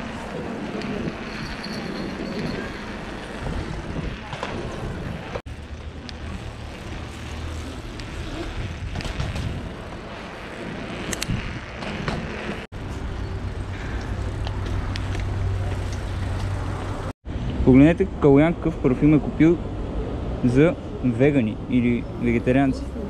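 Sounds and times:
wind noise on microphone: 0:00.0 - 0:05.4, 0:06.2 - 0:17.8
bike tyre rumble: 0:00.0 - 0:17.7.

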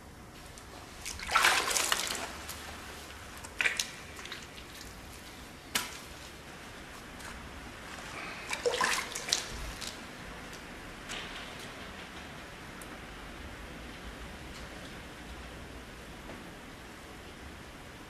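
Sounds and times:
wet splashing handling: 0:00.5 - 0:06.4, 0:07.2 - 0:10.0
sharp wet smacks: 0:03.4 - 0:05.0, 0:05.7 - 0:06.1.

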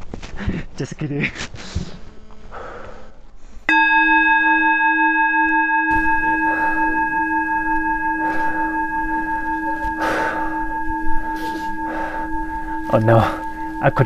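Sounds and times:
singing bowl ringing: 0:03.7 - 0:14.0.

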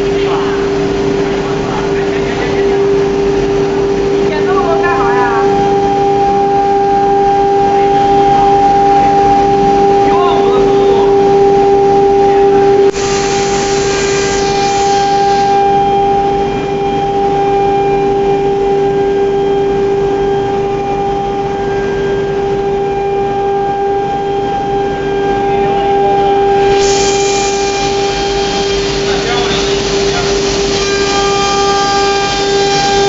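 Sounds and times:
router spindle high whine: 0:00.0 - 0:33.0
bit hissing cutting fibreboard: 0:13.0 - 0:15.5.

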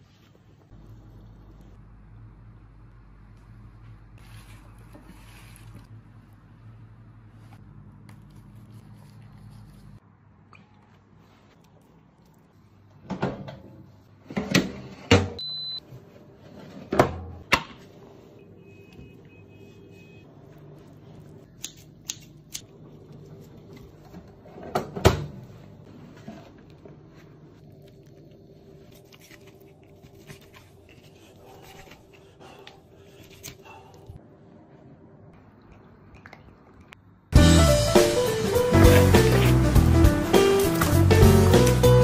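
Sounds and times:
steady low oven hum: 0:00.0 - 0:10.0.

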